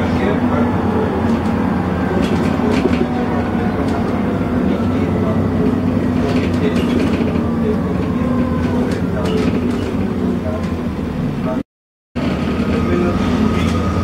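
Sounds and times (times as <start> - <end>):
bus engine drone: 0.0 - 11.6, 12.2 - 14.0
road noise: 0.0 - 11.6, 12.2 - 14.0
interior clicks and rattles: 5.9 - 10.8.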